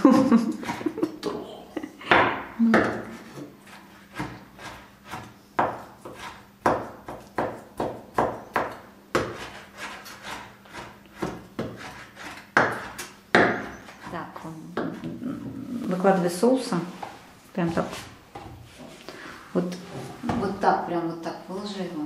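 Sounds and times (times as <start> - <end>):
knife chopping on wooden board: 2.1 - 14.1.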